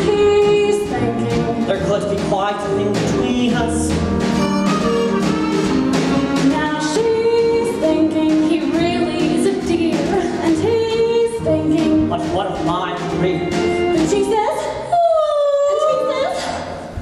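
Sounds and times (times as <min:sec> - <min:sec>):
person singing: 0:00.0 - 0:04.2
pit orchestra playing show tune: 0:00.0 - 0:14.6.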